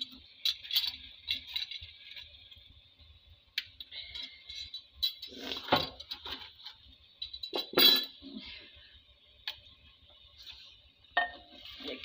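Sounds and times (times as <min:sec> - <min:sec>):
wood fire crackling: 0:00.0 - 0:07.5.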